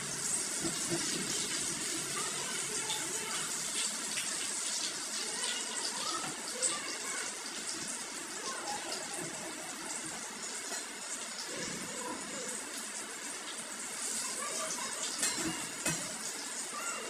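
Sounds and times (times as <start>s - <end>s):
food sizzling in a pan: 0.0s - 17.0s
metal spatula clinking on pan: 15.1s - 16.1s.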